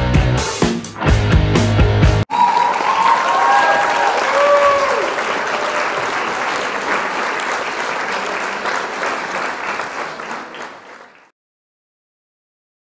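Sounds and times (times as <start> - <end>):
audience applause: 2.3 - 11.3.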